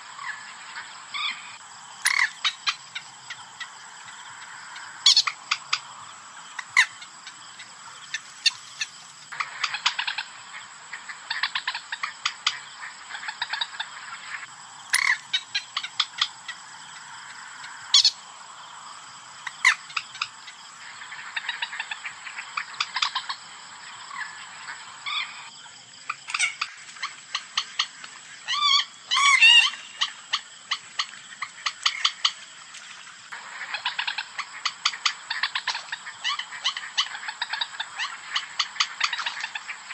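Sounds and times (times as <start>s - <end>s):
moorhen calls: 1.2s - 10.2s, 14.9s - 18.2s
steady hiss: 1.6s - 9.4s.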